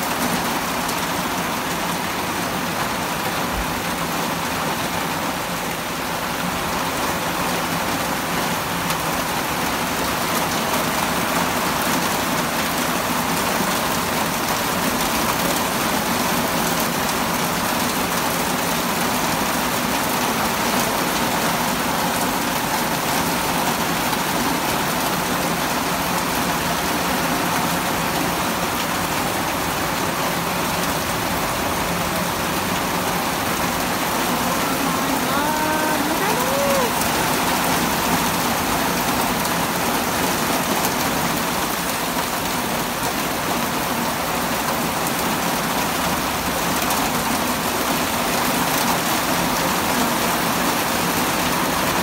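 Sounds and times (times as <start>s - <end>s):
heavy rain pouring: 0.0s - 52.0s.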